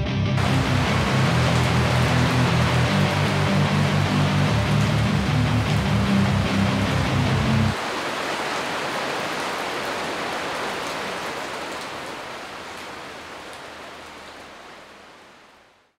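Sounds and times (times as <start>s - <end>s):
music with heavy bass: 0.0s - 7.8s
steady rain falling: 0.4s - 15.9s.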